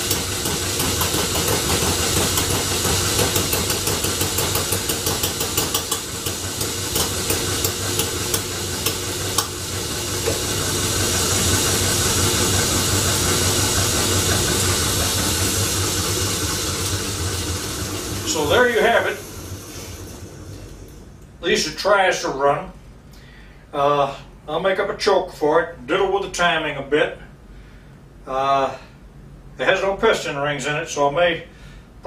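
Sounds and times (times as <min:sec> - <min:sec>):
engine popping: 0:00.0 - 0:20.5
belt-driven engine drone: 0:00.0 - 0:21.7.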